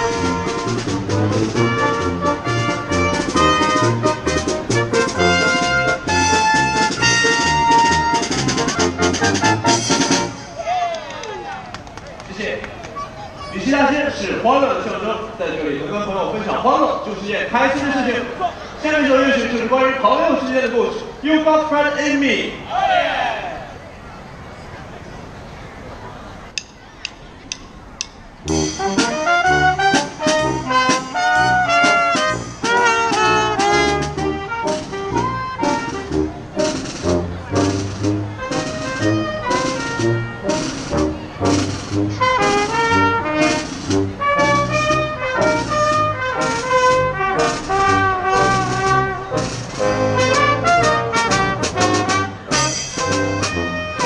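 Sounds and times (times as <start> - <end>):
brass band playing jazz: 0.0 - 10.6, 28.4 - 54.0.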